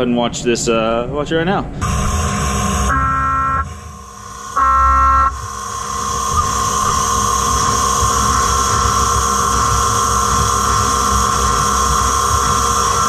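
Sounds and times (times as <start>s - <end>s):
milling spindle whine: 1.8s - 13.0s.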